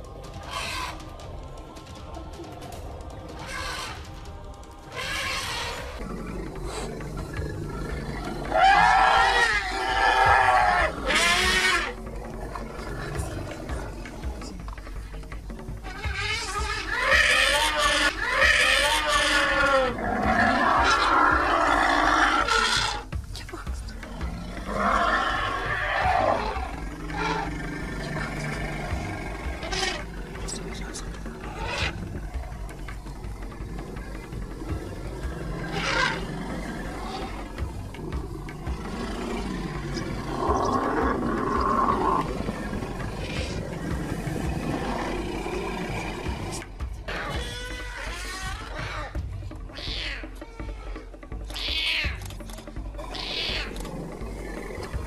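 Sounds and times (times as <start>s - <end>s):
wild animal roaring: 3.2s - 23.1s, 23.9s - 55.0s
animal calls wavering in pitch: 31.4s - 32.1s.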